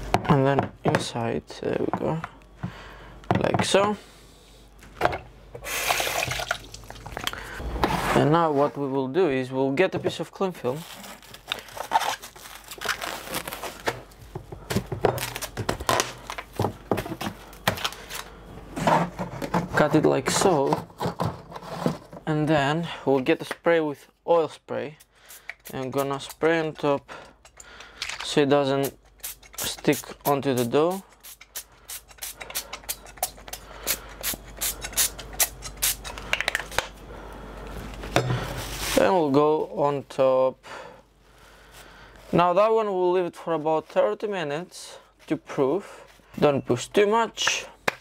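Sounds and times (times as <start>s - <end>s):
cling film crinkling: 10.6s - 14.2s.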